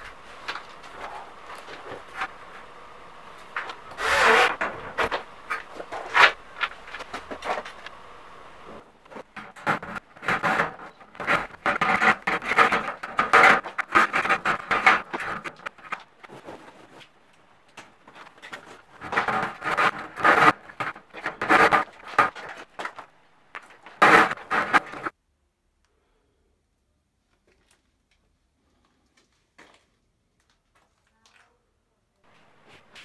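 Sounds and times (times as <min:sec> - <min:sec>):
plastic conduit scraping and rattling: 0:03.4 - 0:08.0, 0:08.7 - 0:17.1, 0:17.7 - 0:25.1.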